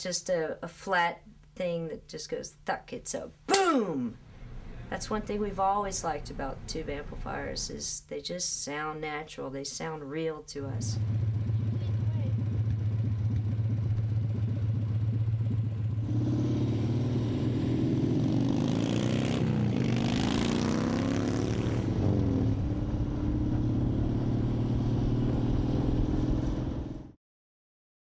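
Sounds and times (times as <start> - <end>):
motorcycle engine passing by: 10.8 - 27.2.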